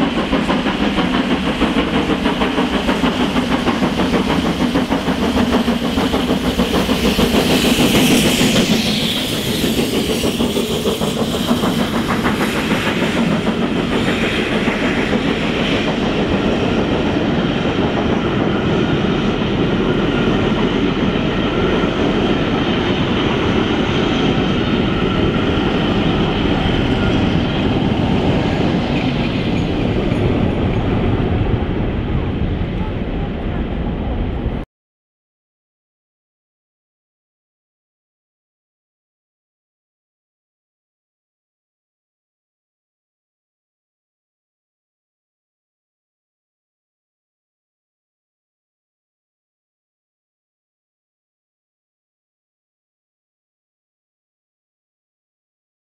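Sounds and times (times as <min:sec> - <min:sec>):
train wheels clattering over rail joints: 0:00.0 - 0:18.8
steam locomotive exhaust beats: 0:00.0 - 0:34.6.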